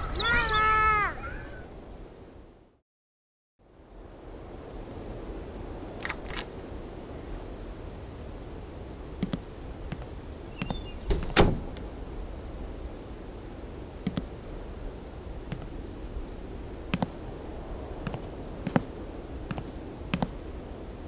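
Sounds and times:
low steady background noise: 3.6s - 21.0s
footsteps: 14.0s - 14.3s, 16.9s - 17.2s, 18.0s - 20.4s.

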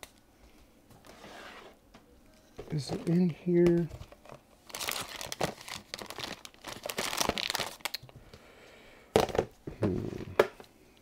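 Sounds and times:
hands rummaging rustling: 2.6s - 7.8s.

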